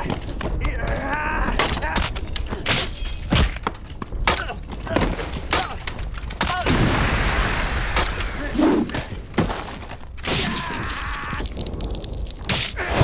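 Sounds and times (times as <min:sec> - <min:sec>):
falling debris: 0:04.6 - 0:13.0.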